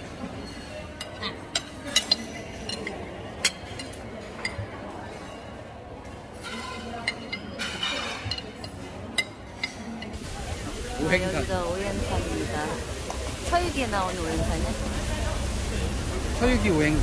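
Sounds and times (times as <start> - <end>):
cutlery clinking on plates and glasses: 0.0 - 10.2
low voices murmuring: 10.1 - 17.0.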